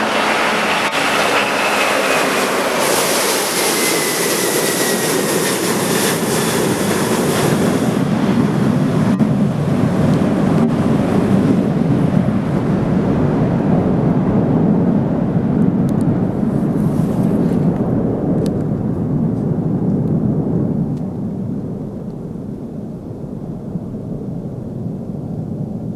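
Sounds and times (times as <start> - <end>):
jet engines at takeoff thrust: 0.0 - 25.9.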